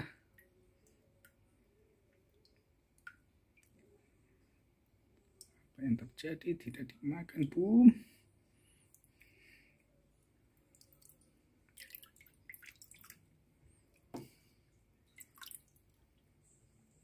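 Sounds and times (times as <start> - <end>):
water drips in plastic tub: 2.1 - 3.9, 7.3 - 7.7, 10.6 - 13.3, 15.1 - 16.3.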